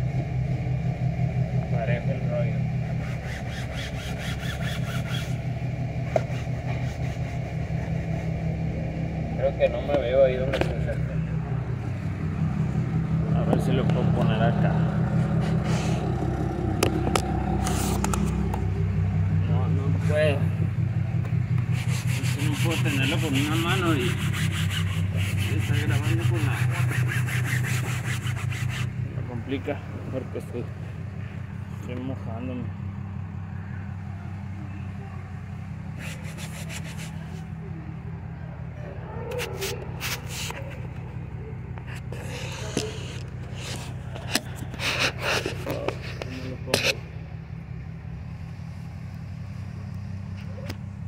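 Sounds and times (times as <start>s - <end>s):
steady low hum: 0.0s - 51.0s
cloth scrubbing fabric: 3.0s - 5.4s, 21.7s - 28.9s, 36.0s - 37.4s.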